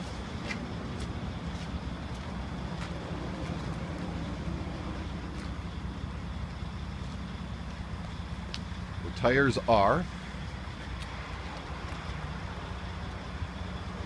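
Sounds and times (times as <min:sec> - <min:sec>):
diesel truck engine idling: 0:00.0 - 0:14.0
faint light ticks: 0:08.5 - 0:08.7.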